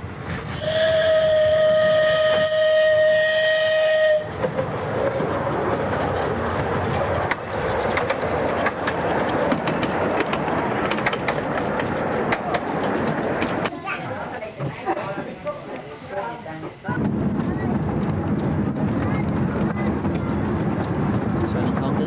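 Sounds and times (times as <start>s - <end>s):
train rolling past rumble: 0.0s - 22.0s
steam locomotive whistle: 0.6s - 4.3s
wheels clicking on rails: 4.2s - 14.8s, 16.6s - 22.0s.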